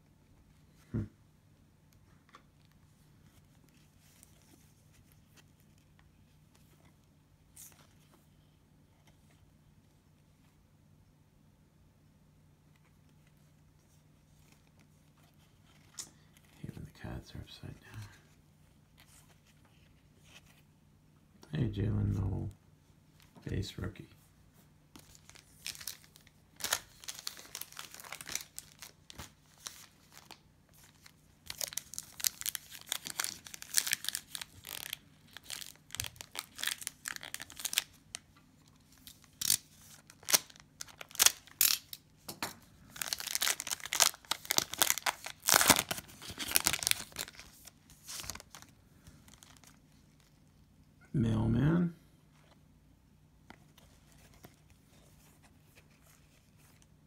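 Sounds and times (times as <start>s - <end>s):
cellophane crinkling: 25.0s - 42.0s, 42.8s - 50.5s.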